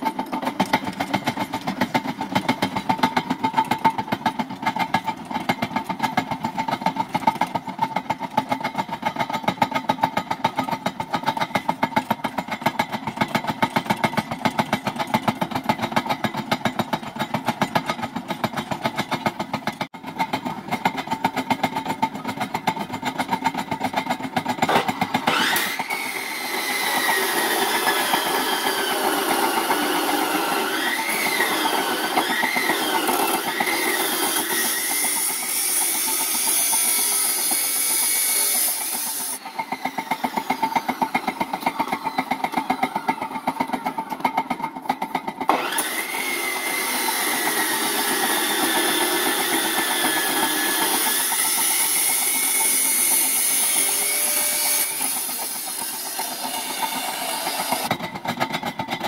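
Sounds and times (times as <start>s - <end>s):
generator running: 0.0s - 59.0s
cut-off saw motor whining: 24.7s - 44.1s, 45.5s - 58.0s.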